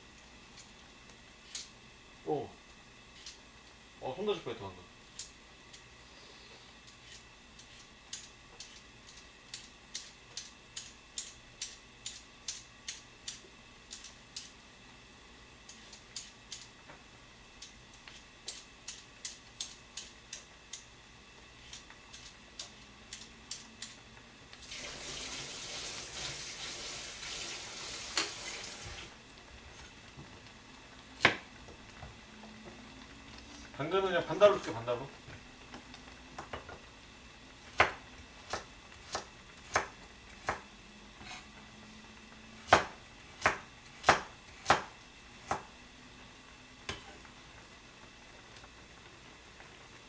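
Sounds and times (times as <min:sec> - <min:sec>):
kitchen tap running: 0:24.6 - 0:29.2.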